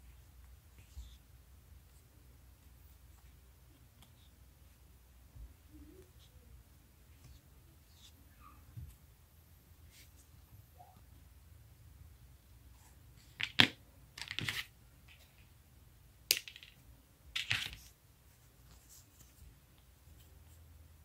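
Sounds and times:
rustle of yarn and hands: 9.8s - 11.1s, 17.4s - 21.0s.

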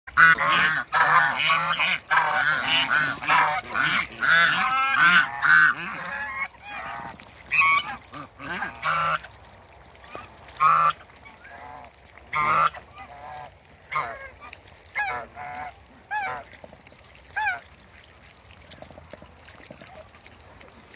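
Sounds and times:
geese honking: 0.1s - 9.3s.

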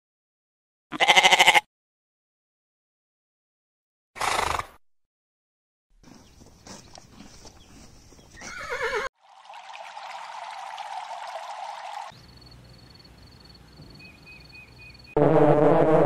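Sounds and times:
horse whinnying: 8.4s - 9.1s.

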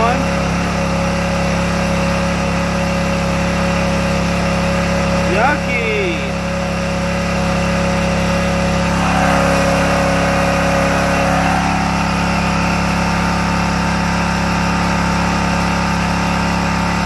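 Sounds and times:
portable generator engine running: 8.4s - 16.2s.

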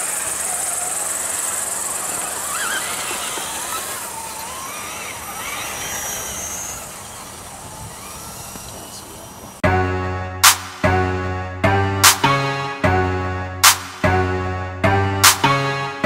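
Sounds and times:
electric motors and gears whining: 0.0s - 9.6s
steady high outdoor hiss: 0.0s - 9.6s.

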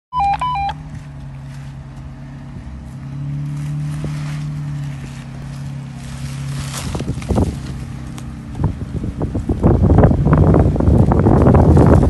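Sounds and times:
electronic chime beeps: 0.2s - 0.8s
car engine at low revs: 0.2s - 12.0s.

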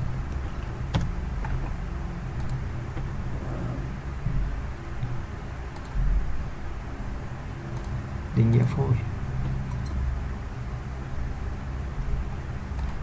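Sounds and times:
low background hum: 0.0s - 13.0s
computer mouse clicks: 2.4s - 2.6s, 5.7s - 6.0s, 12.7s - 13.0s.

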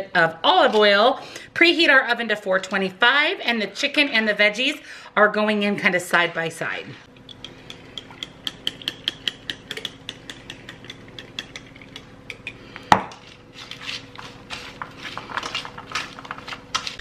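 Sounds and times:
vegetables rustling on a pan: 13.1s - 17.0s.

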